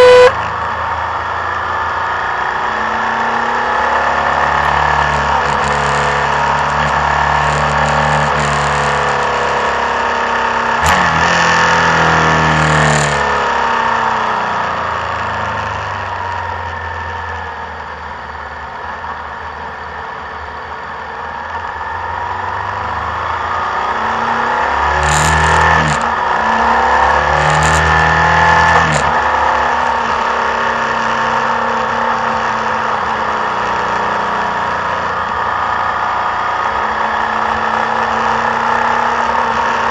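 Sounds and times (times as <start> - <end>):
motorcycle engine running: 0.0 - 2.4, 4.1 - 9.8, 10.4 - 13.4, 14.8 - 29.9.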